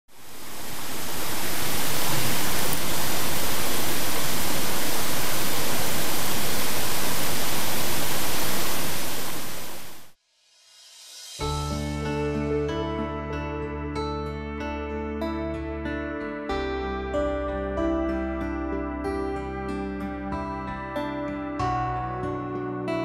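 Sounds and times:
waterfall rushing: 0:00.1 - 0:10.2.

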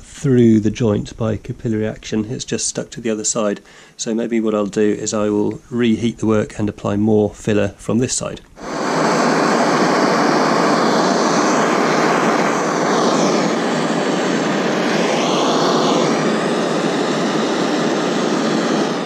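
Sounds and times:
gas torch hissing: 0:08.6 - 0:19.0.

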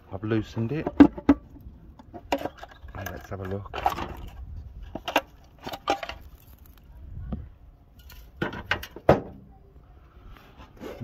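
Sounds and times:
metal clanks and scrapes: 0:00.6 - 0:06.8.

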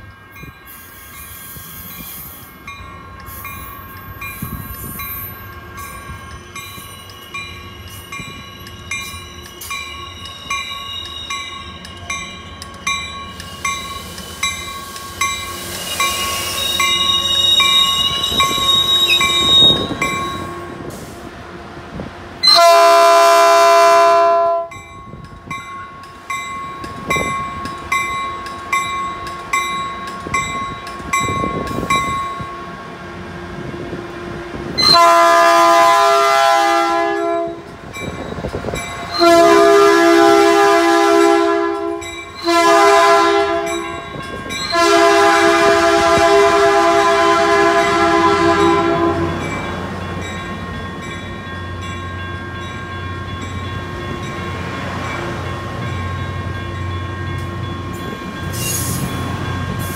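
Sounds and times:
crossing bell dinging: 0:00.0 - 0:20.9, 0:22.4 - 0:32.9, 0:34.8 - 0:59.9
train rumbling by: 0:00.0 - 0:59.9
train air horn blasts: 0:22.4 - 0:24.7, 0:34.8 - 0:37.7, 0:39.1 - 0:43.8, 0:44.7 - 0:49.4.

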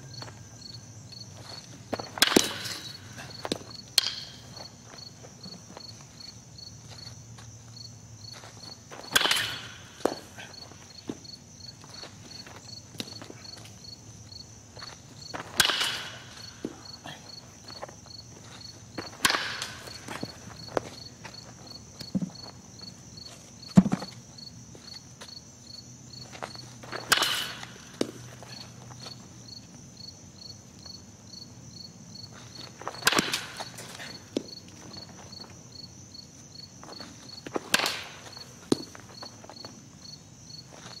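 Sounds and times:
crickets trilling: 0:00.0 - 0:41.0
baseball bat hitting ball: 0:02.1 - 0:04.5, 0:09.0 - 0:10.4, 0:15.4 - 0:16.8, 0:19.0 - 0:20.9, 0:27.0 - 0:28.3, 0:32.9 - 0:34.5, 0:37.5 - 0:39.0.

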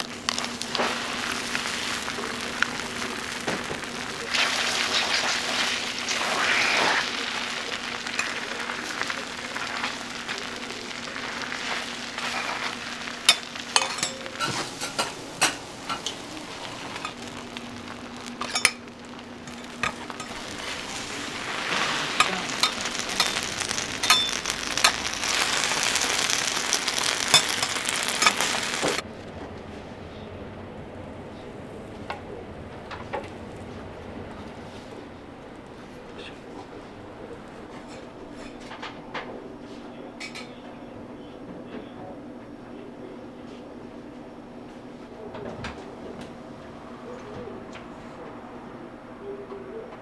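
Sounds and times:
food sizzling on griddle: 0:00.0 - 0:29.0.

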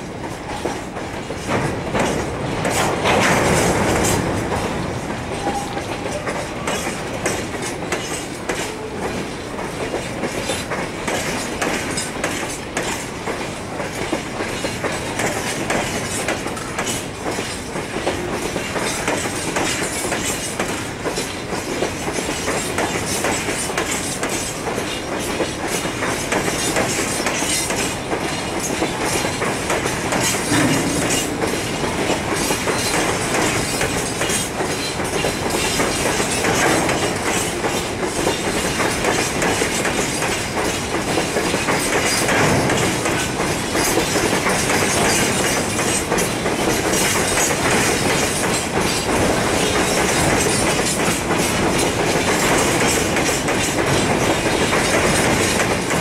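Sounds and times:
train wheels clacking over rail joints: 0:00.0 - 0:56.0.

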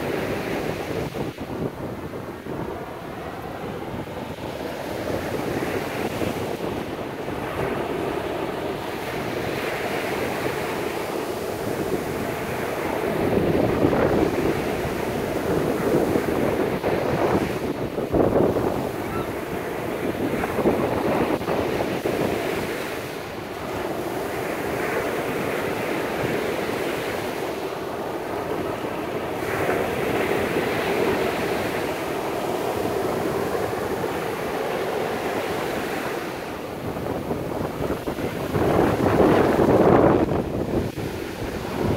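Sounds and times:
small waves washing on sand: 0:00.0 - 0:41.9
wind buffeting microphone: 0:00.0 - 0:41.9.

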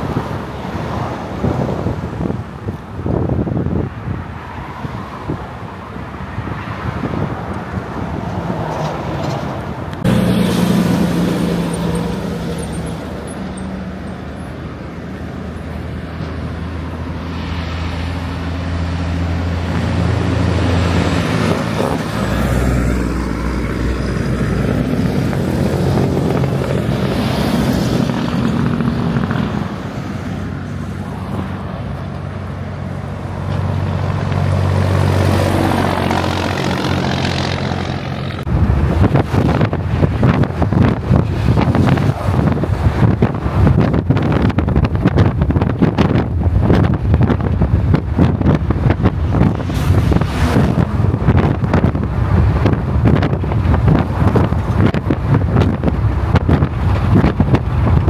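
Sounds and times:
trucks passing on highway: 0:00.0 - 0:58.0
tyre and road noise: 0:00.0 - 0:58.0.

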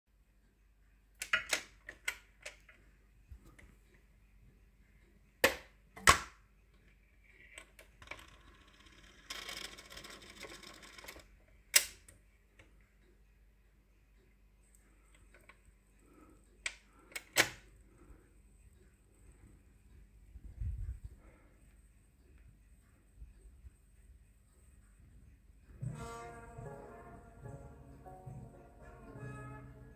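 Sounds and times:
scraping mechanism noise: 0:07.2 - 0:12.0.

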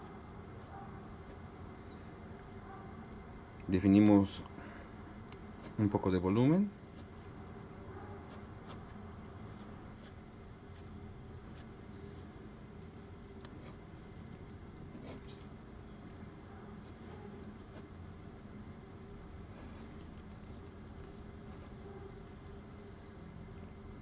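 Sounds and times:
low background hum: 0:00.0 - 0:24.0
pen scratching on paper: 0:08.2 - 0:10.9, 0:14.8 - 0:15.5, 0:19.6 - 0:22.2.

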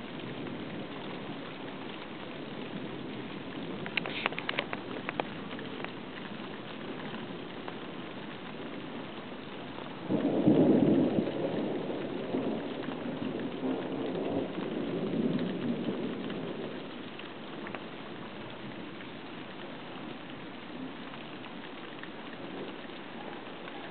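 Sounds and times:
steady rain: 0:00.0 - 0:23.9
thunder rumbling: 0:00.0 - 0:23.9.

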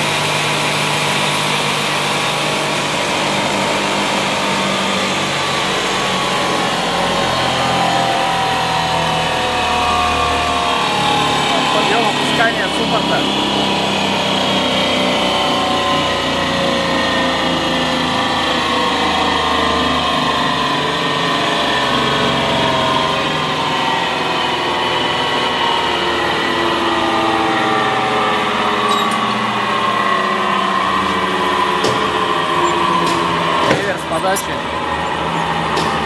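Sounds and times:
circular saw humming and whining: 0:00.0 - 0:36.0.

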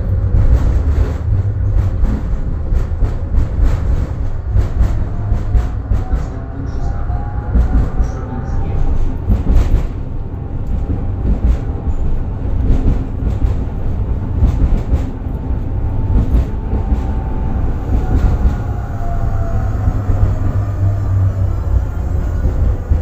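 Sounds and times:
tram rumbling along track: 0:00.0 - 0:23.0.

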